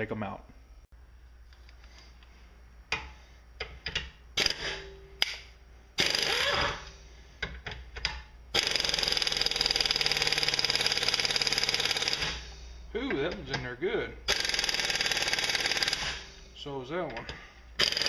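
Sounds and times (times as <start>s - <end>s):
impact wrench hammering: 2.9s - 6.8s, 7.4s - 12.5s, 14.3s - 16.4s, 17.8s - 18.0s.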